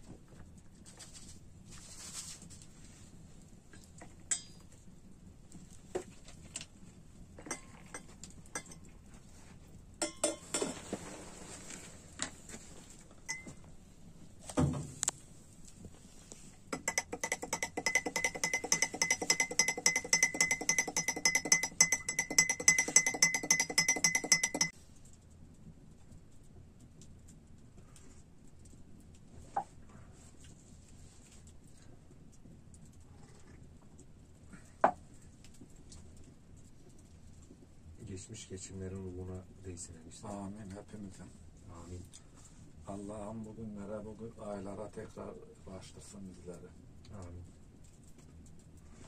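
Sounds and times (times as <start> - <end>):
clinks of teapot and glasses: 7.4 - 8.8, 10.0 - 10.8, 13.3 - 13.6, 16.7 - 24.7
teaspoon stirring in tea glass: 13.3 - 13.6, 16.7 - 24.8.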